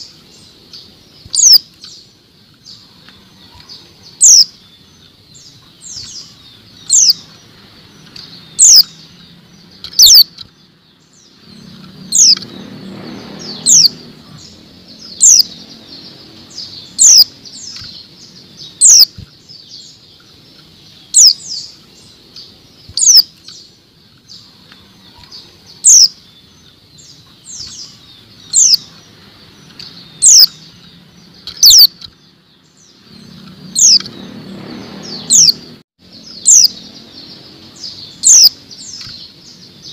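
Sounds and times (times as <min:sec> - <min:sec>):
bird high-pitched call notes: 0:00.0 - 0:02.1, 0:02.7 - 0:07.4, 0:08.1 - 0:10.5, 0:13.4 - 0:23.7, 0:24.4 - 0:29.0, 0:29.8 - 0:32.2, 0:35.1 - 0:39.9
low rumble: 0:11.0 - 0:19.4.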